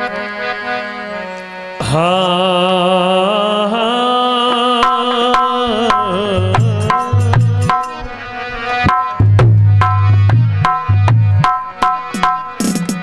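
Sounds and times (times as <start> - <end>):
harmonium: 0.0 - 13.0
wavering held vocal note: 1.8 - 8.2
hand drum strokes: 5.9 - 13.0.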